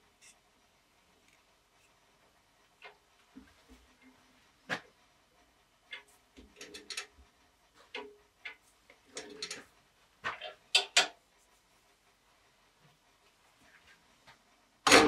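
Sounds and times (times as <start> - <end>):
metal clicks and knocks of lathe: 5.9 - 7.2, 7.9 - 9.7, 10.3 - 11.2.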